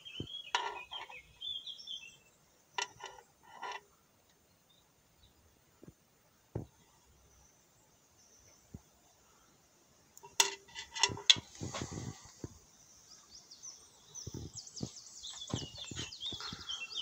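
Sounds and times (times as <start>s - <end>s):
small bird chirping: 0.0s - 5.4s, 10.2s - 17.0s
handling knocks and clicks: 10.2s - 12.6s.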